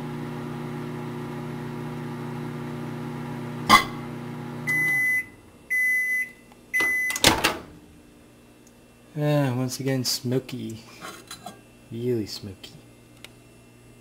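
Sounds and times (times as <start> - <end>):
microwave oven humming: 0.0 - 14.0
microwave beeps: 3.6 - 7.4
microwave click: 6.8 - 7.7.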